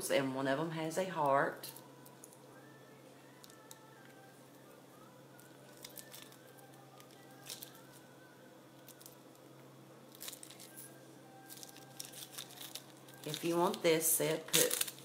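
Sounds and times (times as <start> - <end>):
faint background music: 0.0 - 15.0
low steady hum: 0.0 - 15.0.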